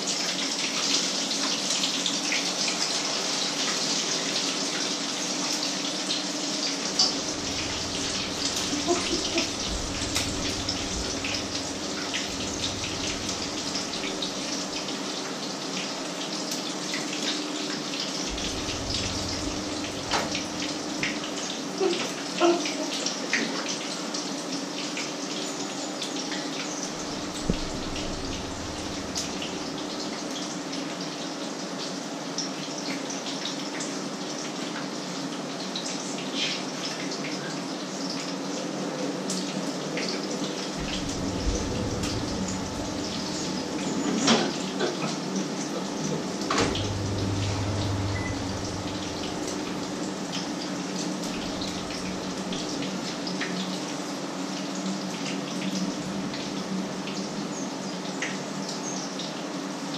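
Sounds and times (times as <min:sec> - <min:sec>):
low steady hum: 0:07.0 - 0:15.0, 0:18.2 - 0:21.5, 0:26.9 - 0:30.3, 0:40.7 - 0:44.4, 0:46.4 - 0:53.4.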